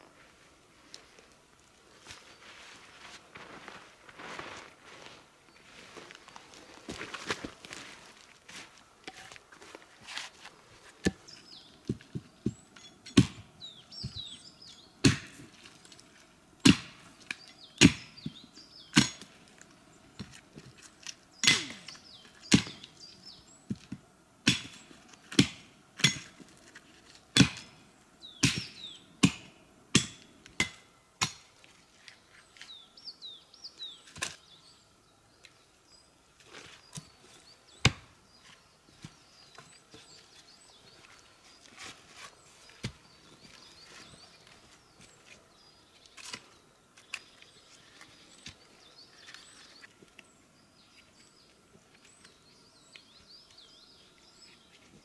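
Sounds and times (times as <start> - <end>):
small birds chirping: 11.1 - 16.2, 17.2 - 25.4, 27.6 - 29.2, 31.5 - 55.0
dry wood chopping and cracking: 13.1 - 14.2, 15.0 - 15.4, 16.6 - 18.2, 18.9 - 19.3, 22.5 - 22.9, 24.4 - 26.4, 27.3 - 27.7, 28.4 - 31.5, 37.8 - 38.1.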